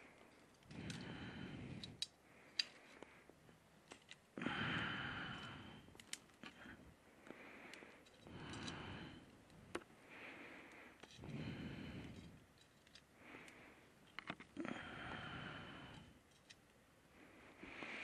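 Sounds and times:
faint slow breathing: 0.0 - 3.6, 4.3 - 18.0
sharp clicks and snaps: 0.2 - 3.1, 5.4 - 6.6.

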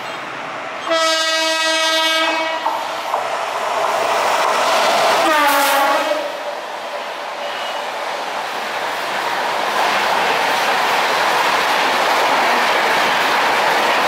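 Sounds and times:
train rushing on rails: 0.0 - 14.0
locomotive horn blasts: 0.8 - 2.7, 5.2 - 6.3.

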